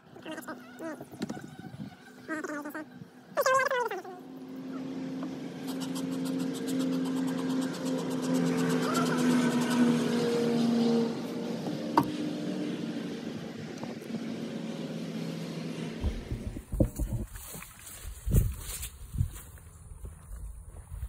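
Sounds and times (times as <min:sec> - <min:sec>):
honeybees buzzing: 0:00.0 - 0:17.2
low thumps and rumble: 0:16.0 - 0:17.6.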